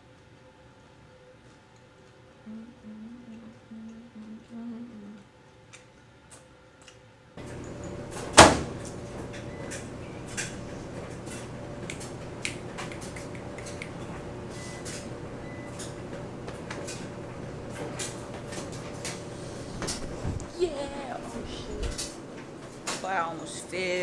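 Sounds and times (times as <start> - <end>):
machine hum: 7.4 - 24.0
washer door banging shut: 8.2 - 9.0.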